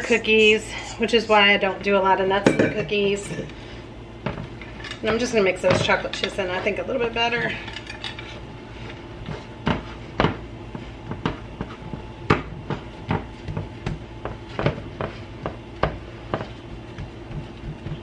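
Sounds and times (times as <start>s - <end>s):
hands pressing dough: 9.2s - 18.0s.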